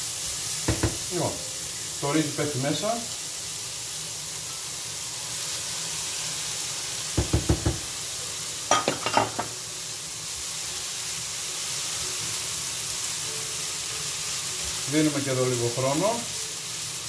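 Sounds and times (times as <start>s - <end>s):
vegetables sizzling in a frying pan: 0.0s - 17.0s
spatula knocking bowl and pan: 0.7s - 1.1s, 7.2s - 7.9s, 8.7s - 9.6s.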